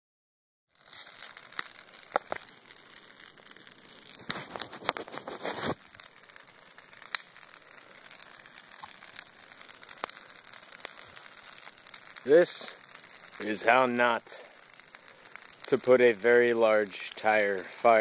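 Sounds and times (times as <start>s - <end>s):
fire popping and crackling: 0.7s - 18.0s
hiss of flames: 0.8s - 18.0s.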